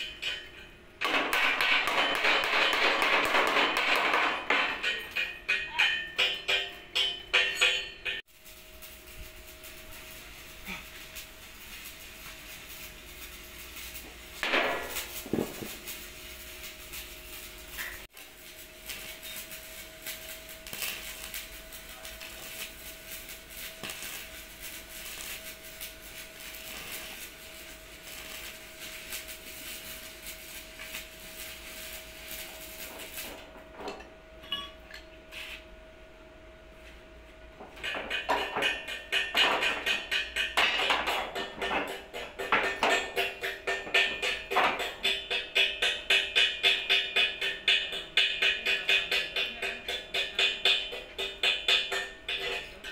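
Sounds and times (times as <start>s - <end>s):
sharp metal knocks: 0.0s - 8.2s, 37.8s - 52.6s
arc welder crackling: 0.0s - 33.6s, 37.7s - 52.9s.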